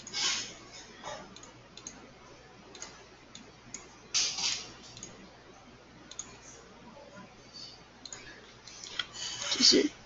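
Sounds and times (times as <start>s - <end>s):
computer mouse clicking: 1.4s - 2.0s, 2.7s - 3.9s, 4.9s - 5.2s, 6.1s - 6.4s.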